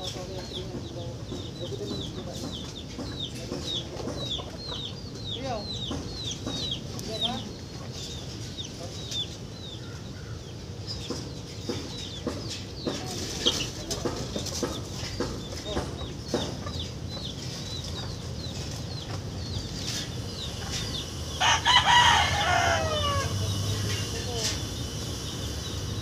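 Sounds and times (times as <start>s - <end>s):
small birds chirping: 0.0s - 26.0s
rooster crowing: 21.3s - 24.0s.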